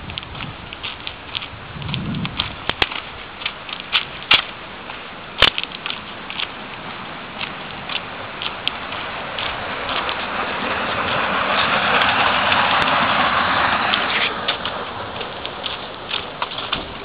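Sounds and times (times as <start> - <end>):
footsteps on dry grass: 0.0 - 17.0
sharp clicks: 0.1 - 4.6, 5.4 - 10.2.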